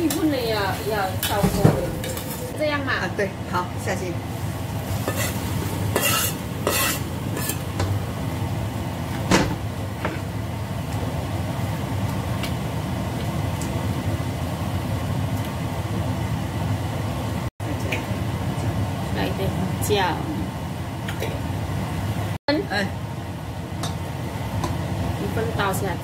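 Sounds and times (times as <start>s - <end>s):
utensils scraping against pan: 0.0s - 2.6s, 4.8s - 7.9s
vegetables sizzling in a pan: 0.0s - 9.1s.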